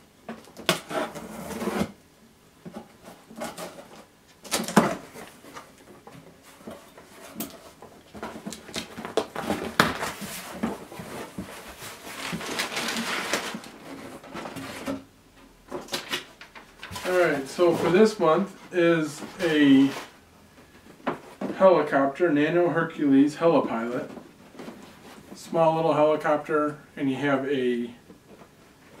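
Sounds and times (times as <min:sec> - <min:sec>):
packing paper rustling: 0:03.0 - 0:15.1, 0:15.8 - 0:20.2.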